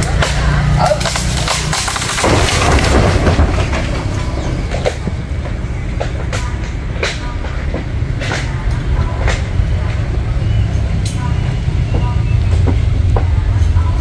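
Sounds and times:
sharp cracks and knocks: 0.0s - 8.5s
engine idling unevenly: 0.0s - 14.0s.

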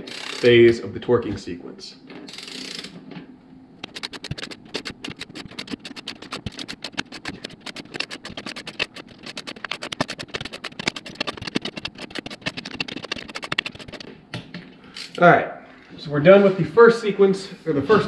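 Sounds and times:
torque wrench clicking: 0.0s - 0.5s, 2.3s - 2.9s.

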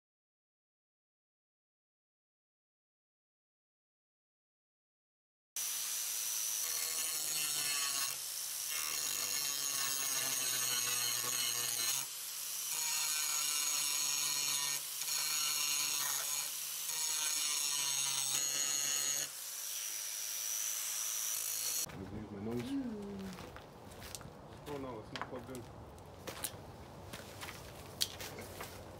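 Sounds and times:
angle grinder grinding steel: 5.6s - 21.9s.

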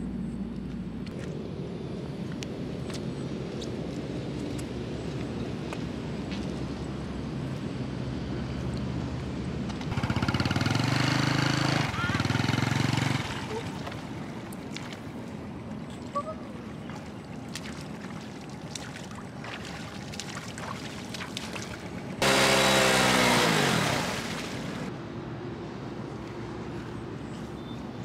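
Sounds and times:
motorbike engine revving: 9.8s - 13.7s, 22.2s - 24.9s
wheel splashing water: 9.9s - 24.9s.

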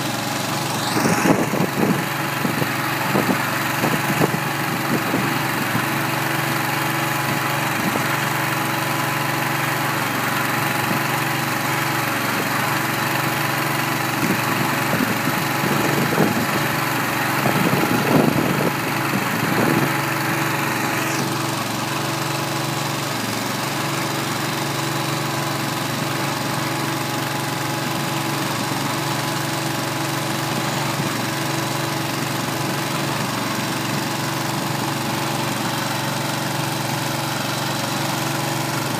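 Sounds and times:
gas engine running: 0.0s - 38.9s
mixer drum tumbling hay: 0.0s - 38.9s.

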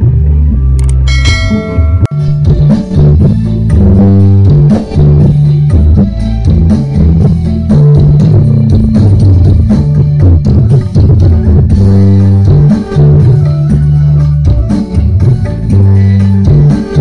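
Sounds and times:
loud music with heavy bass: 0.0s - 17.0s
drum beat: 1.1s - 4.8s.

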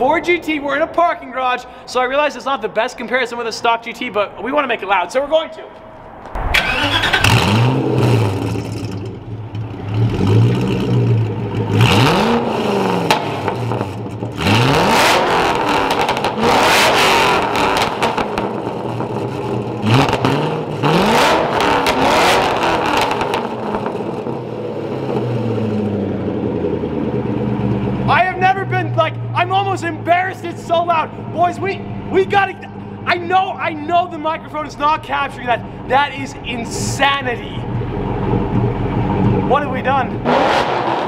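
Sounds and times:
car engine revving: 5.7s - 33.6s, 34.4s - 41.0s
engine idling: 24.0s - 40.2s.

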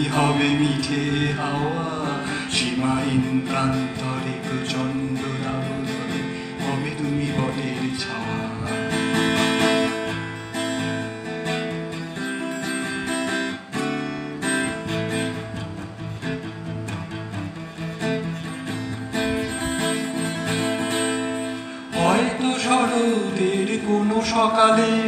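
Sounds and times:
acoustic guitar strummed chords: 0.0s - 25.0s.

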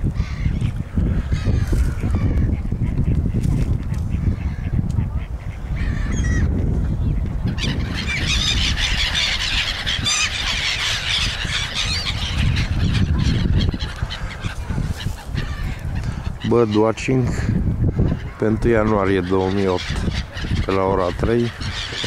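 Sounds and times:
gulls calling: 0.0s - 22.0s.

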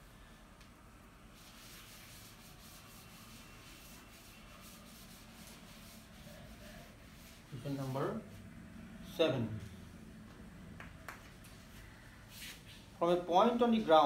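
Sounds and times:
duster scrubbing a chalkboard: 1.3s - 8.5s.

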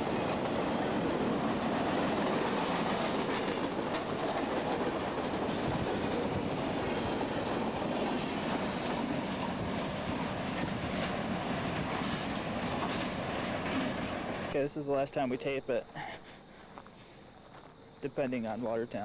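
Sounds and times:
freight train wheels rumbling and rattling: 0.0s - 14.7s.

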